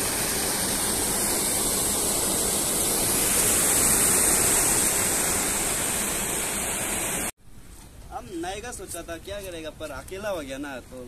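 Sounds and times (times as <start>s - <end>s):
water rushing over weir: 0.0s - 7.3s.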